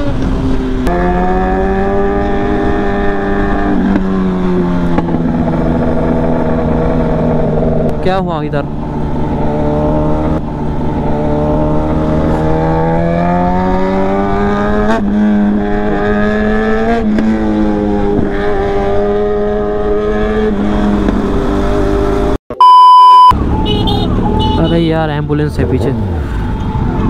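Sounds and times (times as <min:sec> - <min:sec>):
motorcycle engine accelerating: 0:00.0 - 0:08.1, 0:08.7 - 0:22.4
loud steady test tone beep: 0:22.5 - 0:23.4.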